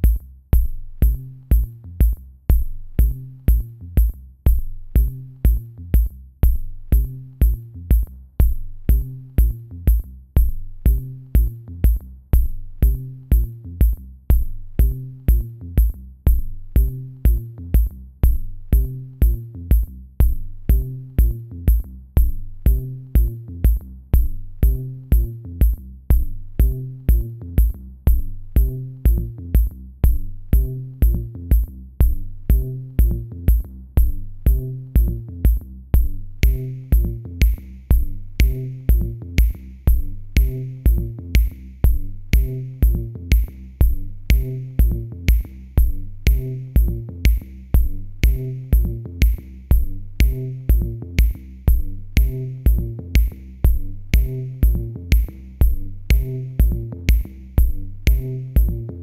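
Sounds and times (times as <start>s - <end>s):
drum machine beat: 0.0s - 59.0s
low bass line: 0.0s - 59.0s.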